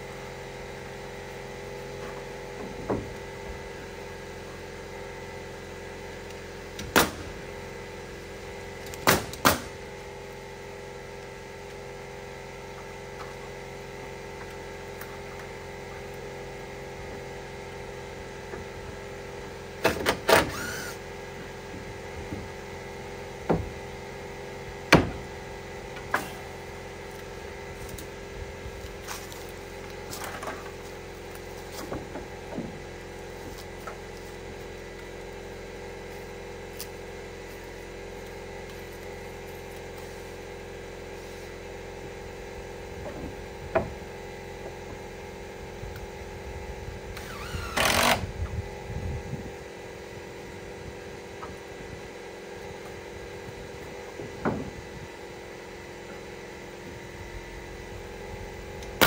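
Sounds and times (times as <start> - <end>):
machine hum: 0.0 - 59.0.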